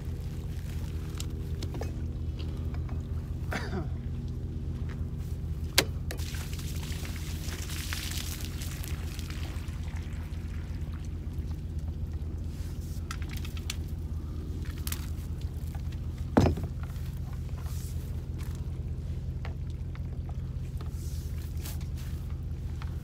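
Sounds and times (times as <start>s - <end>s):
low steady hum: 0.0s - 23.0s
water gushing from drain pipe: 6.2s - 12.4s.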